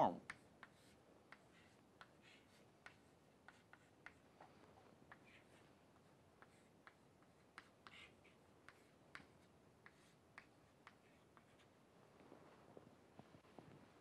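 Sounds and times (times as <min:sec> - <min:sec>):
chalk tapping on chalkboard: 0:00.2 - 0:04.2, 0:05.1 - 0:11.7.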